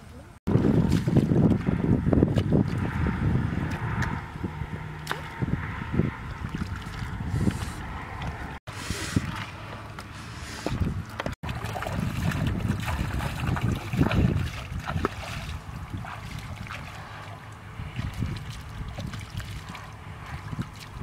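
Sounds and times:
hands splashing in muddy water: 9.0 - 21.0.

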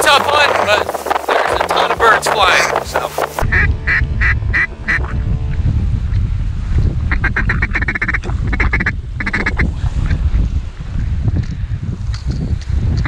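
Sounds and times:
wind rumble on microphone: 0.0 - 13.0
duck quacking: 3.5 - 5.0, 7.1 - 9.6.

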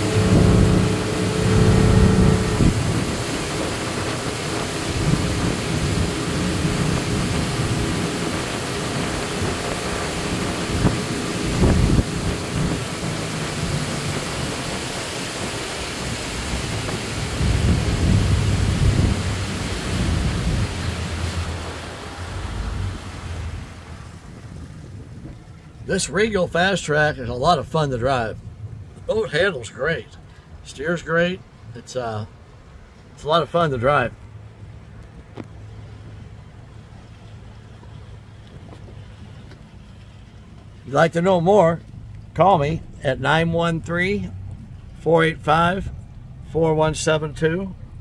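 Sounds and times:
wind rushing over microphone: 0.0 - 25.9
outboard motor drone: 0.0 - 29.5, 32.4 - 48.0
water rushing past boat: 0.0 - 48.0.

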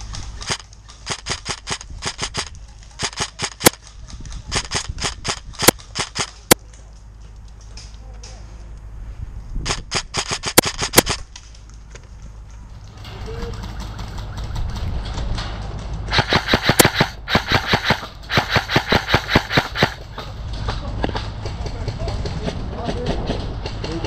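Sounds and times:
airsoft rifle firing rapid shots: 0.4 - 3.8, 4.5 - 6.6, 9.7 - 11.2, 16.1 - 20.1
wind rumble on microphone: 3.9 - 5.9, 8.9 - 11.3.

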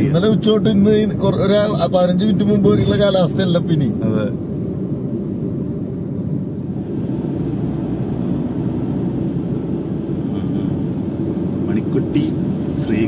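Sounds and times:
car road and engine rumble: 0.0 - 13.0.

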